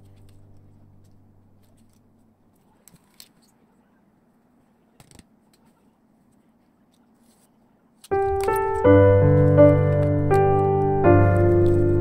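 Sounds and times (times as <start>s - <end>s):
background music: 8.1s - 12.0s.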